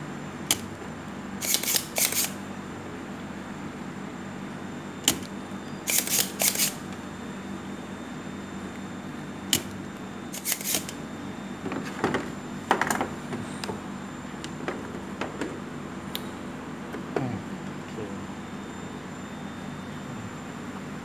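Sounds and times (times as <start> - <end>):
faint electrical hum: 0.0 - 21.0
desoldering pump snaps: 0.5 - 0.8, 5.0 - 7.0, 9.5 - 11.0.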